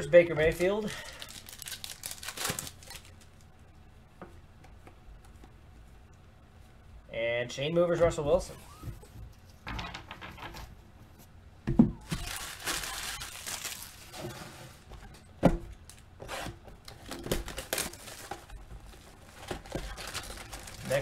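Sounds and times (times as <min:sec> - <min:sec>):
foil wrappers crinkling and tearing: 0:00.4 - 0:03.4, 0:12.0 - 0:14.9, 0:16.8 - 0:21.0.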